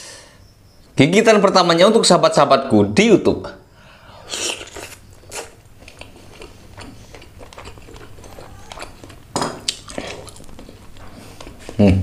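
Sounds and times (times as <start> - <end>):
mouth chewing wetly: 4.2 - 11.8.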